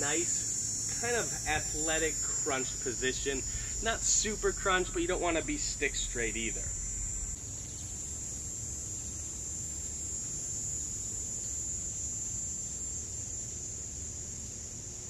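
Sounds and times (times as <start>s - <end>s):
low rumble: 0.0s - 7.4s
insects droning: 0.0s - 15.0s.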